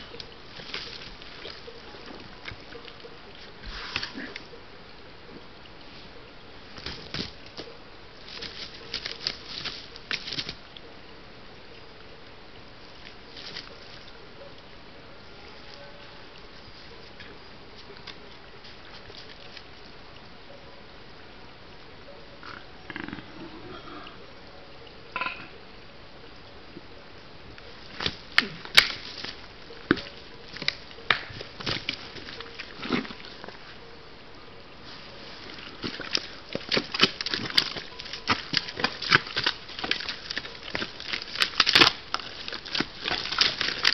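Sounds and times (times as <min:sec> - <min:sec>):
mud and water splashing: 0:00.0 - 0:12.0, 0:12.6 - 0:15.2, 0:26.3 - 0:43.9
mud slaps and squelches: 0:27.9 - 0:33.4, 0:35.5 - 0:43.9.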